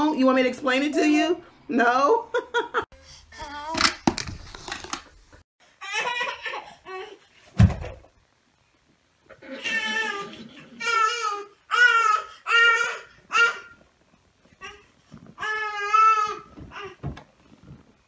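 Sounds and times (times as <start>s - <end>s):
loud dull thump: 7.6s - 8.1s
baby babbling and laughing: 9.4s - 13.8s.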